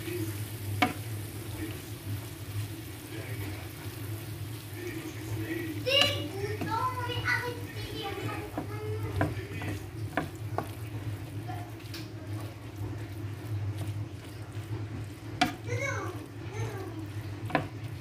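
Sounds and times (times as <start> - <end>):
stirring food in a metal pan: 0.0 - 18.0
utensil clicking against pan: 8.1 - 10.8, 14.9 - 16.4, 17.3 - 18.0.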